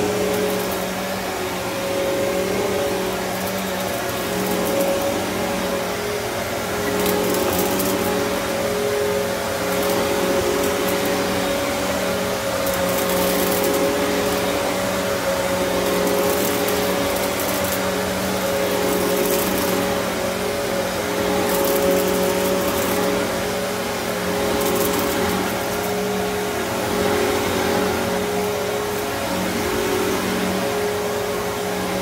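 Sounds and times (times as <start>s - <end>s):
vacuum cleaner on carpet: 0.0s - 32.0s.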